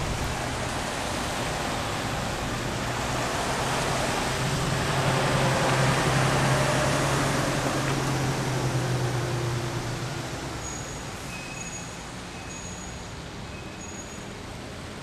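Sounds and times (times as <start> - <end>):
rain falling: 0.0 - 11.3.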